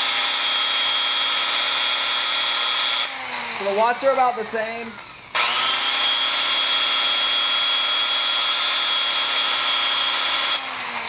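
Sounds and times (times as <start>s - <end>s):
electric drill whining: 0.0s - 11.0s.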